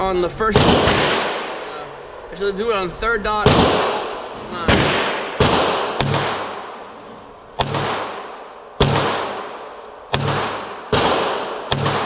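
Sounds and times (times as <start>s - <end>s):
pistol shots echoing indoors: 0.6s - 1.7s, 3.4s - 6.7s, 7.6s - 12.0s.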